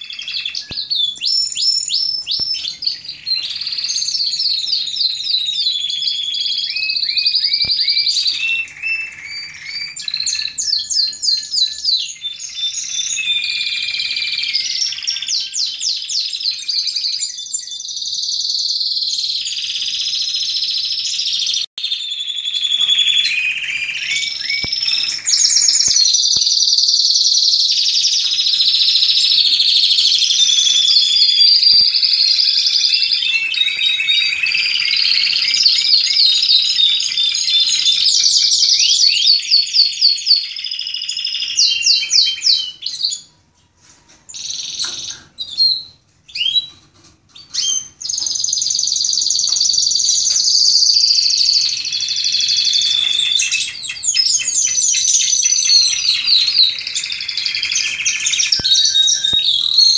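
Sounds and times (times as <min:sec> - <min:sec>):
canaries singing trills: 0:00.0 - 0:59.9.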